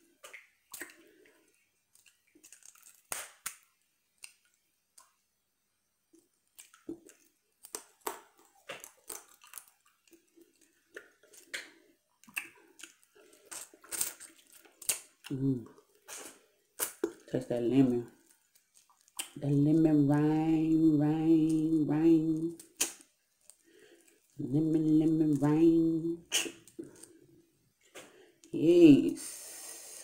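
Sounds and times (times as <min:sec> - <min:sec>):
chewing and biting: 0:06.5 - 0:17.4, 0:18.1 - 0:19.4.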